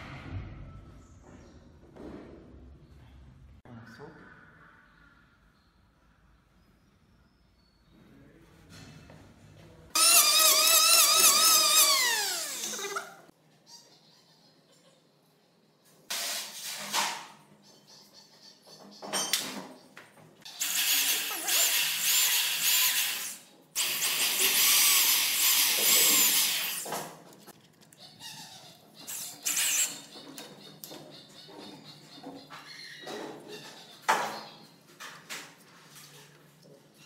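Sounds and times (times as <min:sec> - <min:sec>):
electric drill boring into wood: 0:10.0 - 0:13.0, 0:20.6 - 0:26.9.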